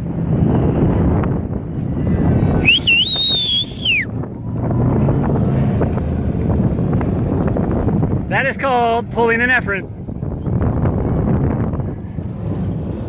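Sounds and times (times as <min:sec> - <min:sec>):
race car engine running hard: 0:00.0 - 0:13.0.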